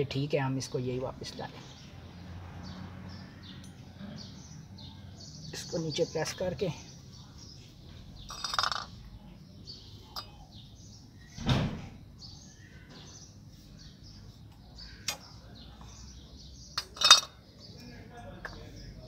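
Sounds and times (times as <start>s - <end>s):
birds chirping: 0.0s - 19.0s
ringing metal clink: 8.3s - 8.9s, 16.8s - 17.4s.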